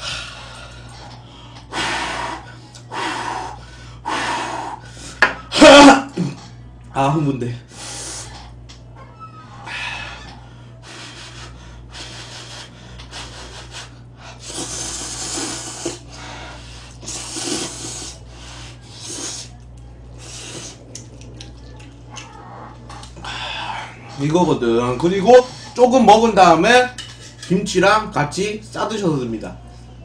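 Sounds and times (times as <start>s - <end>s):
noodles being slurped: 17.0s - 19.5s.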